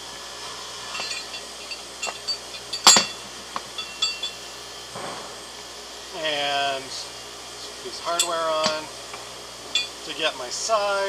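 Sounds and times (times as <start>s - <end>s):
metal shackle and hook clinking: 0.8s - 4.5s, 9.7s - 10.0s.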